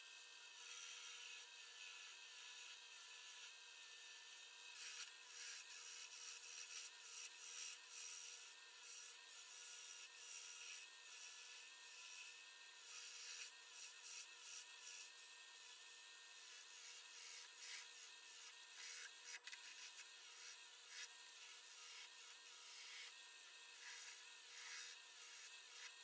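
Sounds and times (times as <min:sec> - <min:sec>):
lathe chisel hissing scrape: 0:10.3 - 0:26.0.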